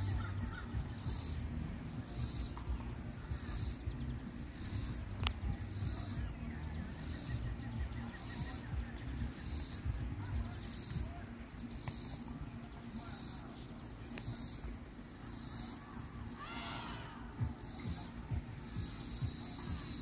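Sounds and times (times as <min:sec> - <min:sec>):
insect calling in raspy pulses: 0:00.0 - 0:20.0.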